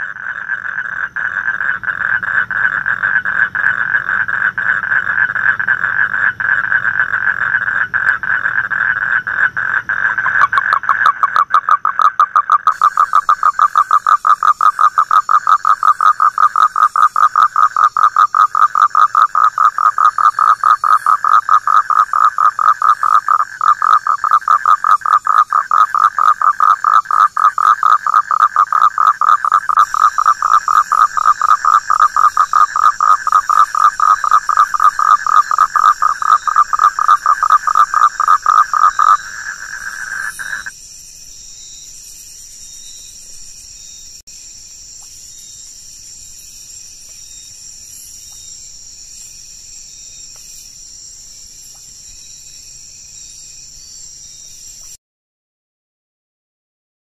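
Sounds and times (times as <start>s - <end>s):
frog calling rapidly: 0.0s - 40.7s.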